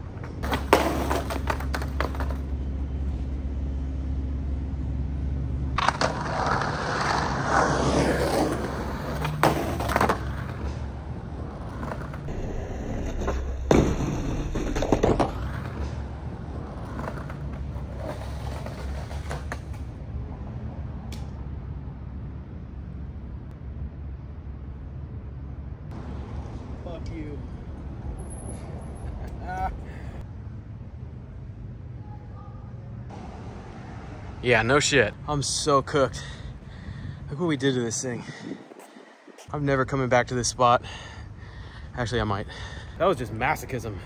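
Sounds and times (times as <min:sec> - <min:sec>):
skateboard wheels rolling on asphalt: 0:00.0 - 0:21.0, 0:33.1 - 0:44.0
skateboard hitting ground: 0:00.2 - 0:02.5, 0:05.8 - 0:10.9, 0:11.5 - 0:16.1, 0:16.7 - 0:19.9.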